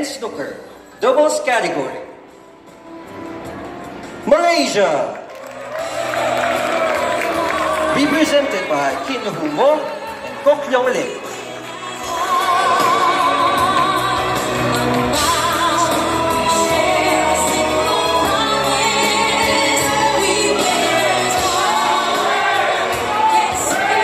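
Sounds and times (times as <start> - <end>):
musical accompaniment: 2.1 - 24.0
person singing with vibrato: 6.7 - 24.0.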